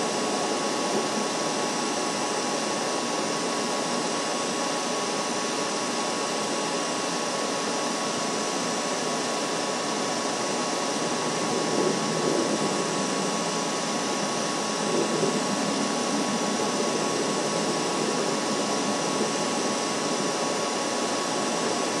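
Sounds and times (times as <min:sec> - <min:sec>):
steady rushing noise: 0:10.2 - 0:22.0.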